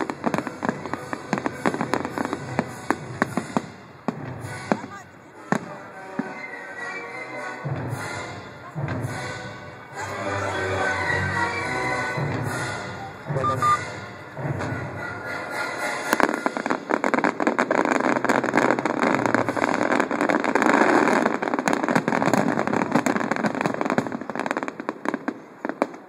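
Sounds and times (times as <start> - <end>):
firework bangs and crackling: 0.0 - 26.0
music: 4.4 - 16.9.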